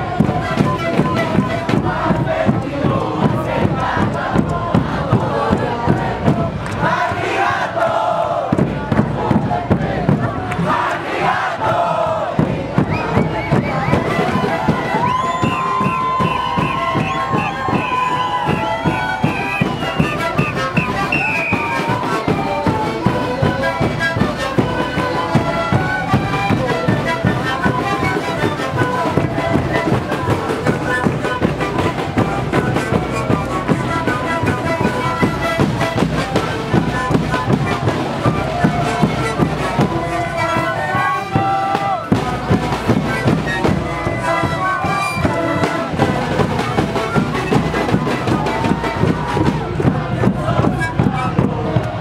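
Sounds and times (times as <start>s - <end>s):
panpipes playing a tune: 0.0s - 6.1s, 13.1s - 51.9s
drums beating: 0.0s - 52.0s
bass drum beat: 8.3s - 10.8s, 45.3s - 52.0s.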